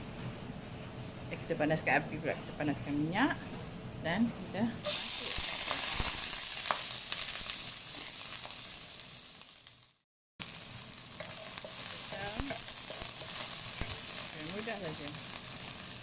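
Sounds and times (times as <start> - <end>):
onion sizzling in hot oil: 4.8 - 16.0.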